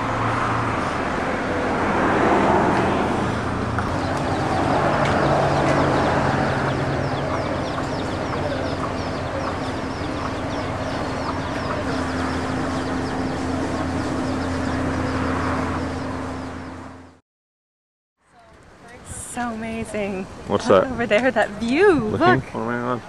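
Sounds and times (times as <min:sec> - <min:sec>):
steady low hum: 0:03.4 - 0:17.1
chickens calling: 0:03.8 - 0:16.8.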